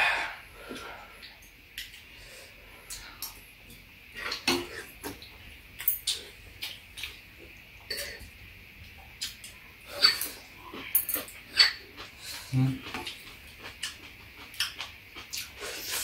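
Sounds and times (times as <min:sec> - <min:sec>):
utensils clinking on ceramic bowls: 0:10.0 - 0:11.8.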